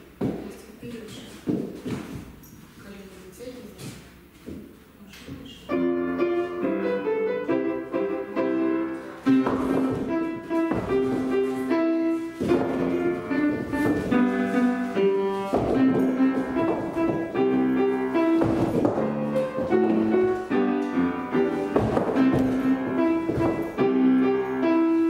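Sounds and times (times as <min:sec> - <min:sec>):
piano music: 0:05.7 - 0:25.0.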